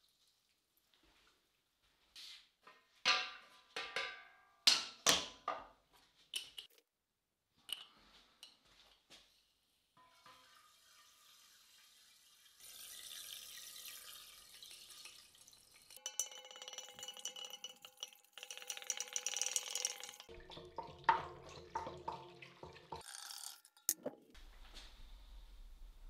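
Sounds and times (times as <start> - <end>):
glass clinks and knocks: 16.0 - 20.3.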